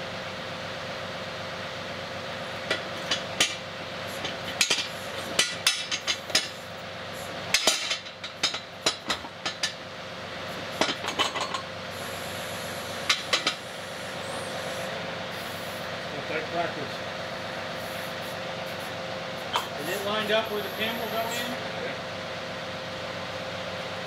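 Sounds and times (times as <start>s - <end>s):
tractor engine running: 0.0s - 24.0s
metal clanking and knocking: 4.2s - 6.6s, 7.5s - 9.8s, 10.8s - 11.7s.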